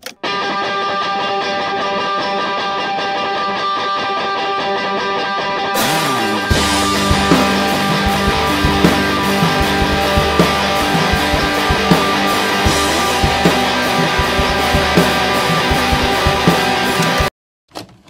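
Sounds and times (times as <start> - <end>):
distorted electric guitar chords: 0.0 - 17.3
drum kit beat: 5.8 - 17.3.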